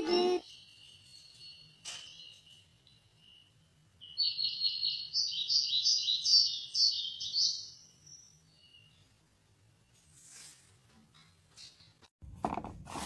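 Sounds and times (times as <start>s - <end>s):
songbird chirping through tv speaker: 0.1s - 9.1s.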